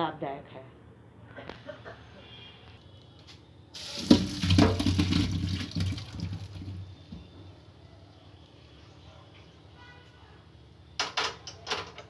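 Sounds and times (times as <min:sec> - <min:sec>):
water and potatoes poured into colander: 0:03.8 - 0:06.8
water draining in steel sink: 0:03.8 - 0:06.8.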